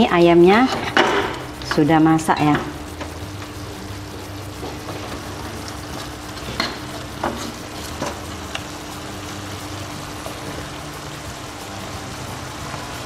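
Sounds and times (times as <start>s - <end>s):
chicken sizzling in sauce: 0.0s - 13.0s
metal spatula scraping a wok: 4.6s - 8.2s.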